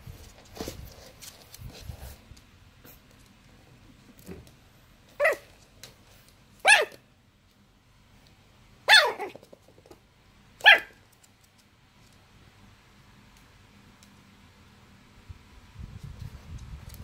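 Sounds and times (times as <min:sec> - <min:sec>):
dog barking: 0:05.2 - 0:05.5, 0:06.6 - 0:07.0, 0:08.9 - 0:09.4, 0:10.6 - 0:11.0.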